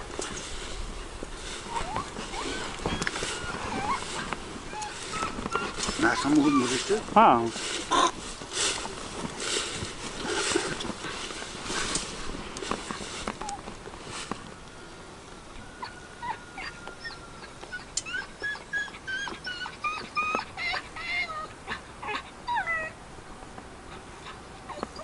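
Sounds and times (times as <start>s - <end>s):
dog whimpering: 1.6s - 7.0s, 15.8s - 23.0s, 24.2s - 25.0s.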